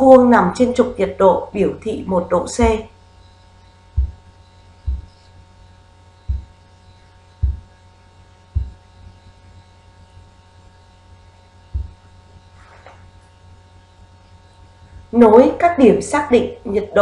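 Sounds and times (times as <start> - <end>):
low electrical hum: 0.0 - 17.0
dull low thumps: 2.5 - 2.8, 3.9 - 5.3, 6.2 - 7.8, 8.4 - 9.1, 11.7 - 12.2.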